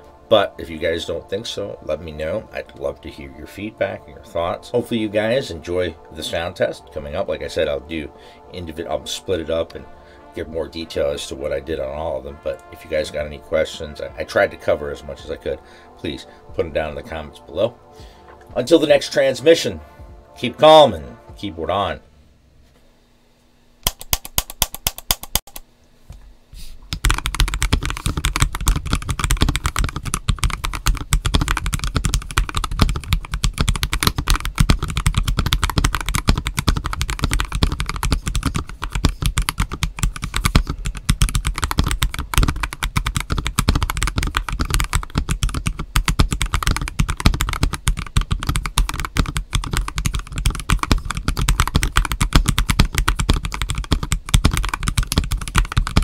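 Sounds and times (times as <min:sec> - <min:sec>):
mechanical keyboard typing clacks: 0:23.9 - 0:25.6, 0:27.0 - 0:56.0.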